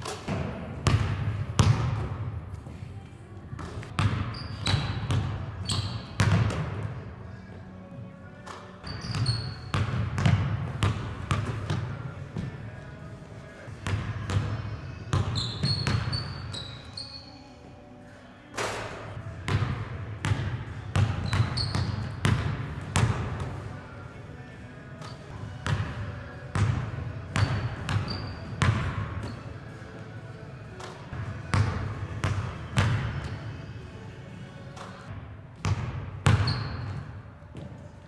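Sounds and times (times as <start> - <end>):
basketball bouncing on wooden floor: 0.3 - 2.1, 3.6 - 6.8, 8.8 - 11.8, 19.5 - 23.5, 35.6 - 37.7
sneaker squeaks: 3.6 - 6.7, 8.4 - 10.4, 14.2 - 17.6, 21.0 - 22.4, 23.8 - 25.8, 26.6 - 29.8, 36.2 - 37.8.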